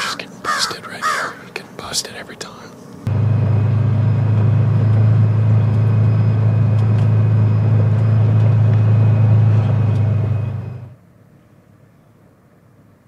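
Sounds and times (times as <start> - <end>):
vehicle engine droning: 3.0 - 11.0.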